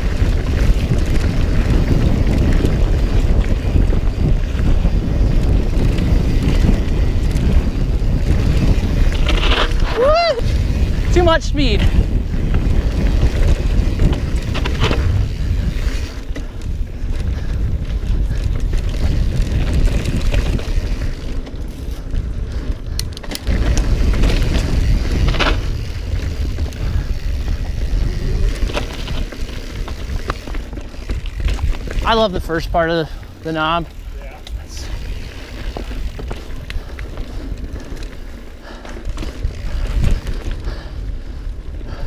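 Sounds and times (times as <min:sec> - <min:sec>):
tyres on dirt: 0:00.0 - 0:11.2, 0:12.0 - 0:41.1
wind buffeting microphone: 0:00.0 - 0:42.0
bike knocks and rattles: 0:12.4 - 0:16.5, 0:22.9 - 0:32.2.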